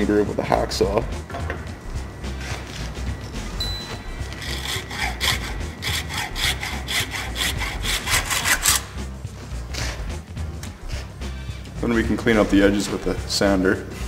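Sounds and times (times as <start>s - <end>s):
hacksaw cutting metal: 4.0s - 9.0s.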